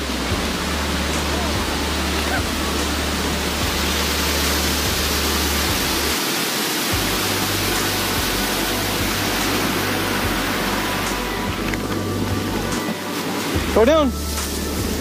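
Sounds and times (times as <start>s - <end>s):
low rumble: 0.0s - 6.2s
waterfall roaring: 0.0s - 15.0s.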